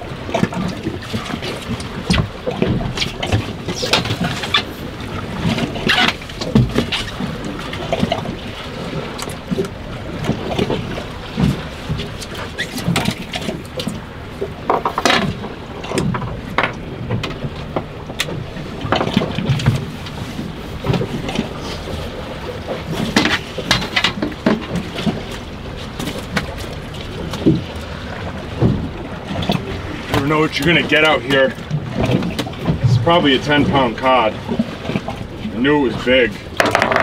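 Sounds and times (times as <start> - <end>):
waves slapping boat hull: 0.0 - 37.0
fishing reel knocks and clatter: 36.6 - 37.0.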